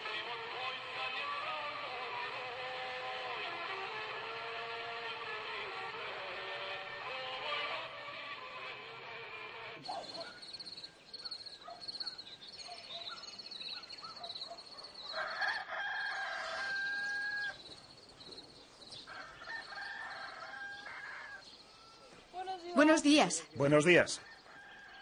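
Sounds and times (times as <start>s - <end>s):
birds twittering: 9.8s - 25.0s
rooster crowing: 15.0s - 17.7s, 19.0s - 22.2s, 24.1s - 25.0s.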